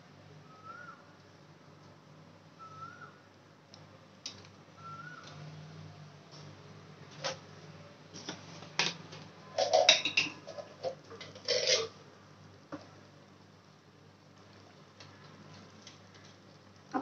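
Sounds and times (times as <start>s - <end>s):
low steady hum: 0.0s - 17.0s
metal kitchen utensils clattering: 9.5s - 12.0s.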